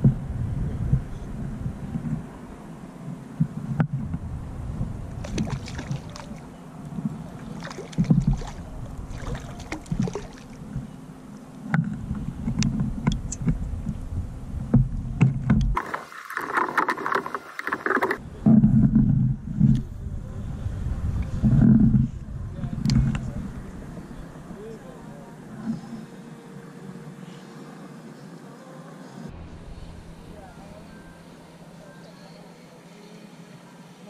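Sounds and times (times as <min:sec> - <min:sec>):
wind buffeting microphone: 0:00.0 - 0:11.1, 0:11.8 - 0:15.8, 0:18.1 - 0:25.9
fish splashing: 0:05.2 - 0:06.5, 0:07.2 - 0:10.7, 0:15.8 - 0:18.2.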